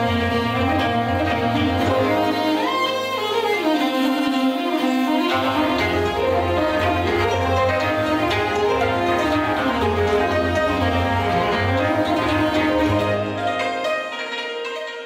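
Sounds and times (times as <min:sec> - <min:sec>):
bowed fiddles playing melody: 0:00.0 - 0:15.0.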